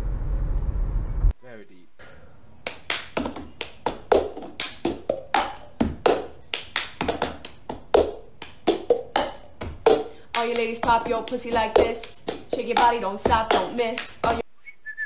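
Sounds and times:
hand claps: 0:02.6 - 0:14.4.

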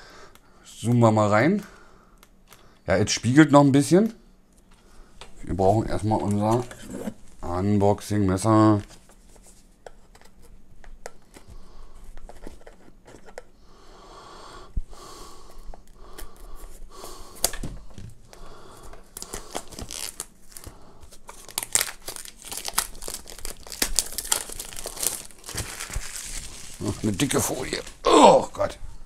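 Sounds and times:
plastic film crinkling and tearing: 0:19.1 - 0:28.0
knife slitting plastic film: 0:19.2 - 0:20.6, 0:21.3 - 0:27.3.

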